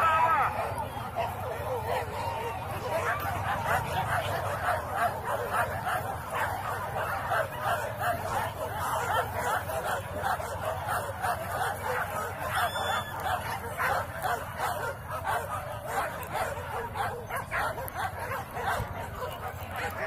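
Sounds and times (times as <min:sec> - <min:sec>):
dogs barking and yelping: 0:00.0 - 0:20.0.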